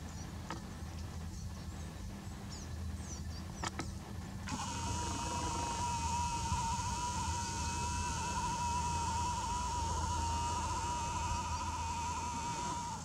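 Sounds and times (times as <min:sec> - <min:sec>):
faint hiss and hum: 0:00.0 - 0:13.0
camera zoom motor whining: 0:04.5 - 0:13.0.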